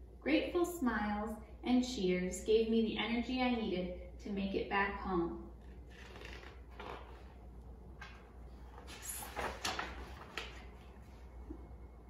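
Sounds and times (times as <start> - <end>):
book pages turning: 5.6 - 11.3.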